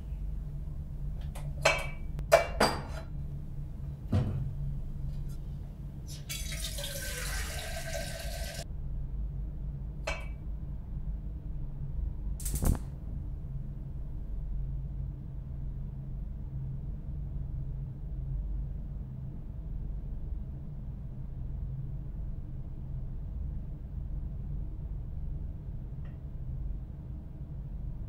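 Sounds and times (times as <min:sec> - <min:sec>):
steady low hum: 0:00.0 - 0:06.7, 0:07.6 - 0:28.0
knocks and clinks at cupboard: 0:01.6 - 0:03.1
kitchen tap running: 0:06.1 - 0:08.6.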